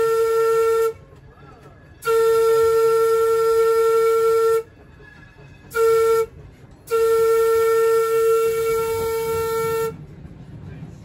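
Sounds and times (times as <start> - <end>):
trolley horn blasts: 0.0 - 1.0, 2.0 - 4.7, 5.7 - 10.0.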